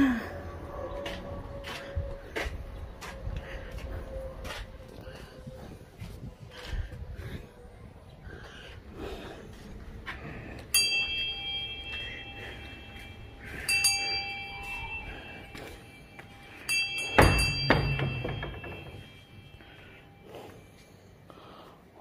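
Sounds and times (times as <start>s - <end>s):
metal bell ringing: 10.7s - 20.2s
heavy thud: 17.0s - 19.2s.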